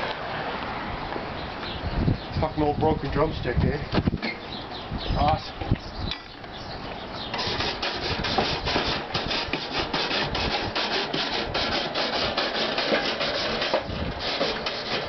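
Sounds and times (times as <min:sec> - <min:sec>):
stick scraping metal grill grate: 0:07.2 - 0:15.0.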